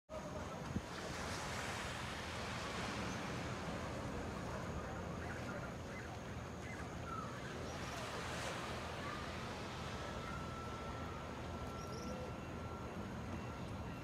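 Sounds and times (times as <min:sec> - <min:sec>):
faint bird calls: 0:04.8 - 0:08.2.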